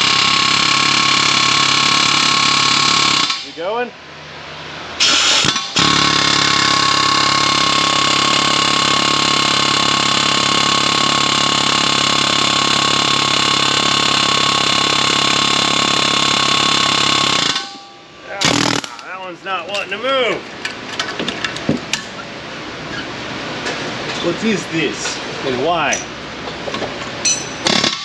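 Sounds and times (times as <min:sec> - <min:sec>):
pneumatic air hammer hammering: 0:00.0 - 0:03.6, 0:05.0 - 0:19.1, 0:27.2 - 0:28.0.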